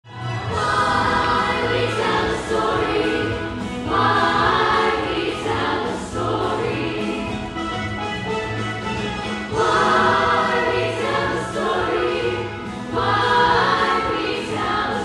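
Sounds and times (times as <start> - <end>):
instrumental accompaniment with bass line: 0.0 - 15.0
group of voices singing: 0.4 - 7.6, 9.5 - 15.0.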